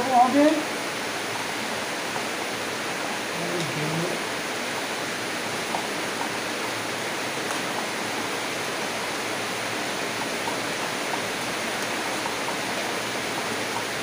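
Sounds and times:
steady background hiss: 0:00.0 - 0:14.0.

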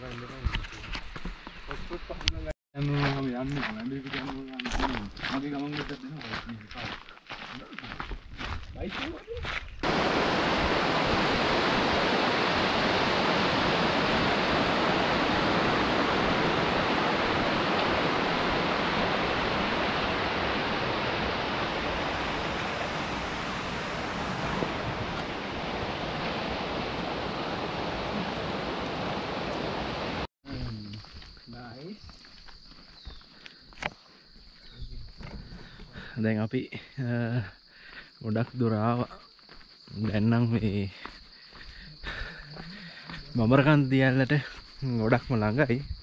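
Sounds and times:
water roaring: 0:09.8 - 0:30.3.

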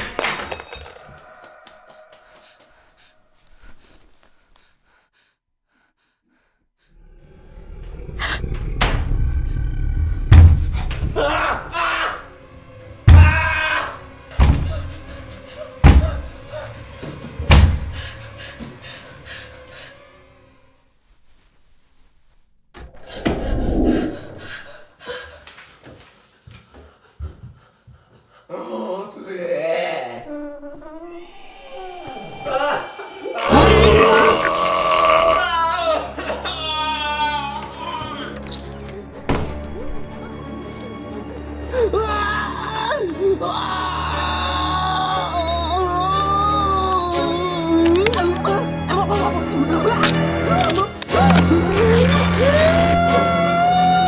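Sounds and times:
panting breaths: 0:01.4 - 0:08.8, 0:22.9 - 0:28.5
low deep drone: 0:07.0 - 0:11.2, 0:22.8 - 0:24.9
knocks and thuds: 0:10.3 - 0:11.0.

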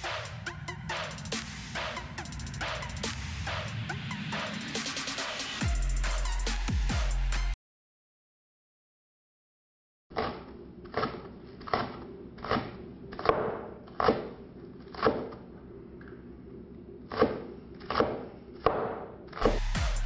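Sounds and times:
knife chopping on wooden board: 0:10.1 - 0:15.4, 0:17.1 - 0:19.7.

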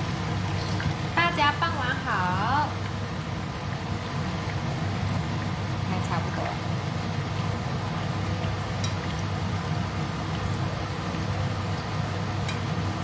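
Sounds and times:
food sizzling in oil: 0:00.0 - 0:13.0
chopsticks ticking against pan: 0:08.8 - 0:09.0.

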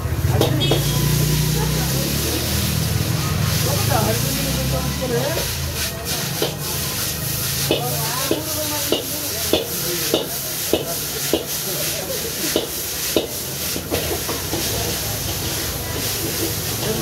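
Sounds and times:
spatula striking and scraping wok: 0:00.0 - 0:01.8, 0:05.3 - 0:17.0
hot pan sizzling: 0:00.0 - 0:17.0.

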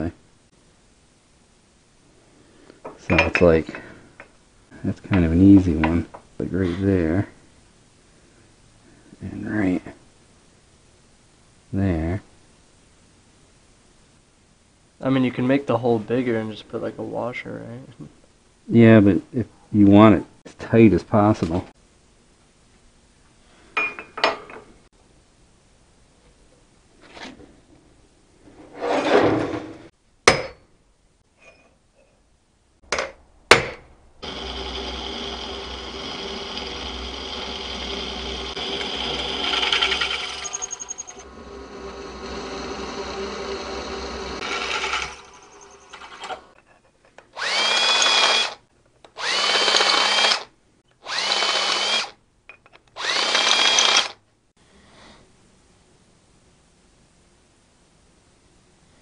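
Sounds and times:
cordless drill whirring: 0:34.2 - 0:46.4, 0:47.4 - 0:48.6, 0:49.2 - 0:52.2, 0:53.0 - 0:54.2
milling machine drilling steel: 0:34.2 - 0:46.4, 0:47.4 - 0:48.6, 0:49.2 - 0:50.5, 0:51.1 - 0:52.1, 0:53.0 - 0:54.2.

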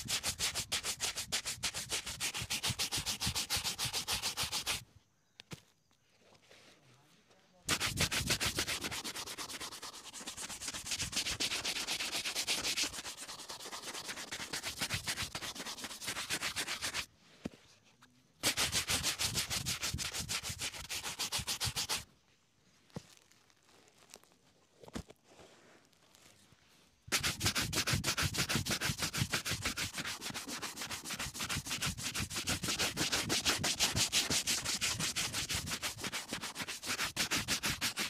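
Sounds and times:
shoe brush scrubbing leather boot: 0:00.0 - 0:04.8, 0:07.7 - 0:17.1, 0:18.4 - 0:22.0, 0:27.1 - 0:38.0.

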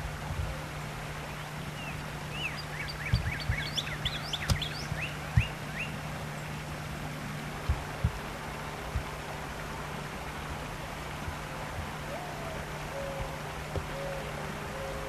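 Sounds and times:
songbird chirping: 0:00.0 - 0:10.4, 0:11.9 - 0:15.0
steady low hum: 0:00.0 - 0:15.0
dull low thumps: 0:03.1 - 0:05.6, 0:07.6 - 0:08.3.

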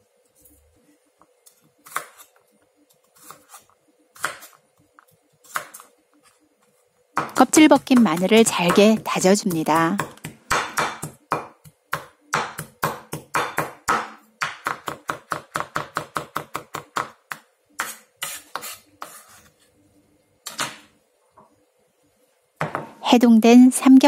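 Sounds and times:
knife chopping on wooden board: 0:04.2 - 0:04.6, 0:07.2 - 0:19.2.

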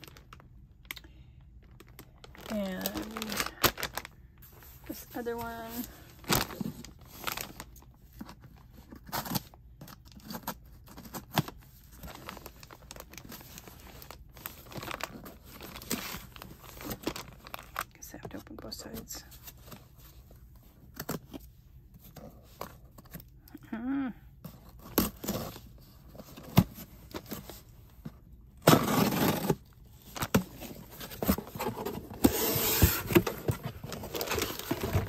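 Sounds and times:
plastic bag rustling: 0:01.6 - 0:07.9, 0:12.0 - 0:17.9, 0:28.7 - 0:35.0.

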